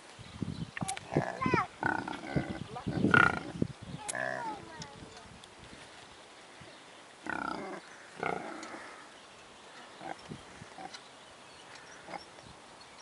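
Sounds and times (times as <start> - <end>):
pig grunting: 1.1 - 4.6, 7.2 - 9.1.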